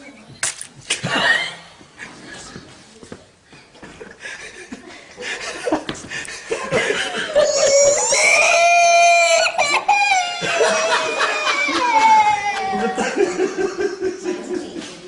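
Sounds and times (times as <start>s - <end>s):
people laughing: 3.8s - 15.0s
boy crying: 7.2s - 13.2s.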